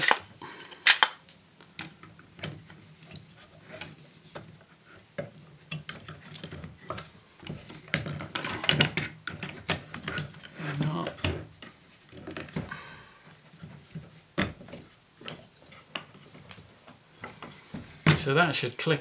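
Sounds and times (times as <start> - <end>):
wooden parts knocking and clicking: 5.2 - 12.7.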